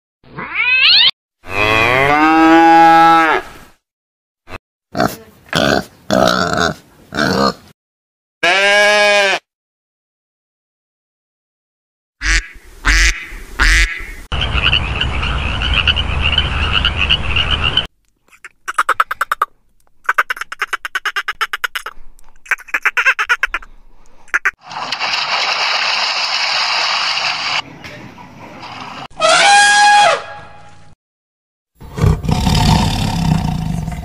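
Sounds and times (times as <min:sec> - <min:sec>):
ducks quacking: 0:12.2 - 0:21.9, 0:22.5 - 0:24.6.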